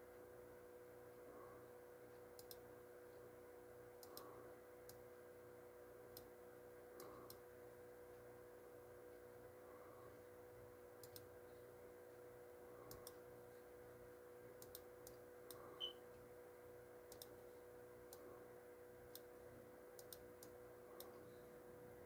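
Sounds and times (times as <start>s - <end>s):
low electrical hum: 0.0s - 22.0s
computer mouse clicks: 2.3s - 2.7s, 4.0s - 5.0s, 7.0s - 7.4s, 11.0s - 11.3s, 12.8s - 13.2s, 14.6s - 16.0s, 17.1s - 17.4s, 20.0s - 21.3s.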